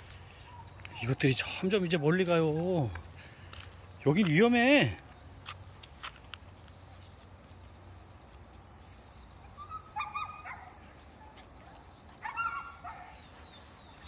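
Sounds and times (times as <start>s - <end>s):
puppies yelping: 9.3s - 13.3s.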